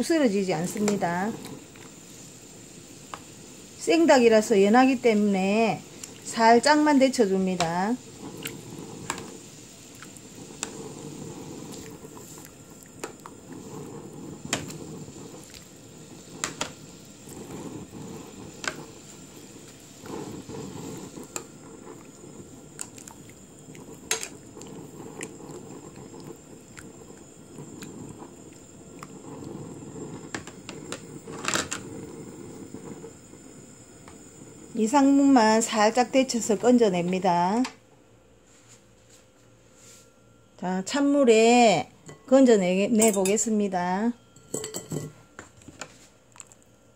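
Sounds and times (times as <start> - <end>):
water bubbling in a pan: 0.0 - 36.9.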